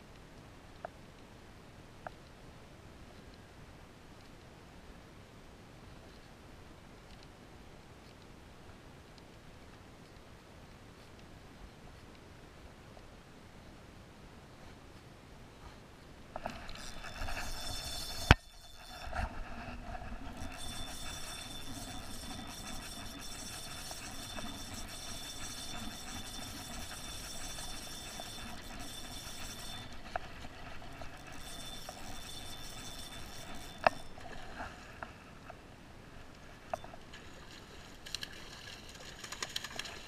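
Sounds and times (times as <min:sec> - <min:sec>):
sharp reel click: 0:16.4 - 0:34.5
fishing reel gears whirring: 0:16.4 - 0:34.6.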